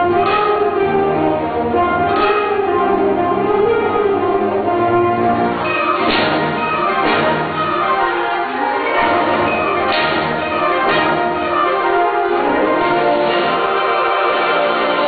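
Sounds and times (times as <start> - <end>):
symphonic band playing chords: 0.0 - 15.0
struck percussion accents: 5.5 - 13.9.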